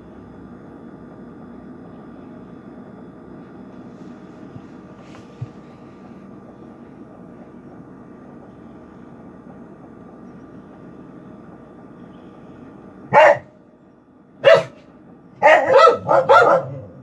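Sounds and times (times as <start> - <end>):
steady low hum: 0.0 - 17.0
dog barking: 13.1 - 13.5, 14.4 - 14.8, 15.4 - 17.0.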